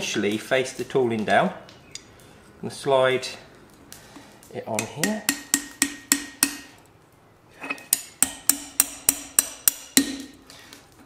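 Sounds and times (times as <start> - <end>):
hammer striking metal on anvil: 4.8 - 6.7, 7.7 - 10.4.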